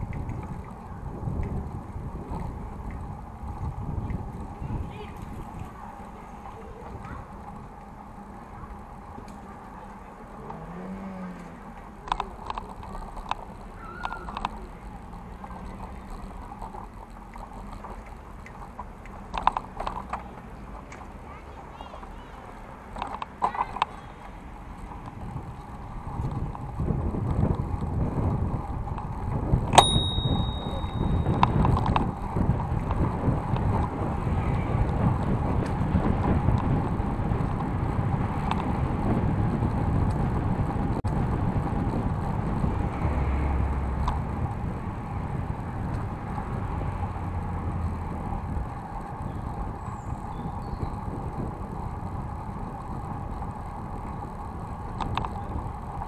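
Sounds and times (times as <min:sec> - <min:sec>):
bicycle tyres and frame rattling: 0:00.0 - 0:56.0
bicycle bell ringing: 0:29.8 - 0:31.7.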